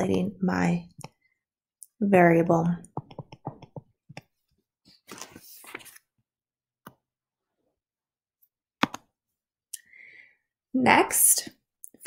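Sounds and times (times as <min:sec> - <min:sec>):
stylus tapping on tablet: 0:02.8 - 0:04.3, 0:08.8 - 0:09.1.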